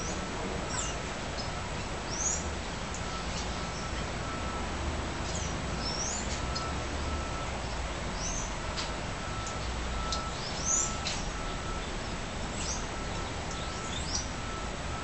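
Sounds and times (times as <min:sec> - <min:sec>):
birds chirping: 0:00.0 - 0:04.1, 0:05.2 - 0:06.7, 0:07.6 - 0:08.6, 0:09.4 - 0:14.4
outdoor background hiss: 0:00.0 - 0:15.0.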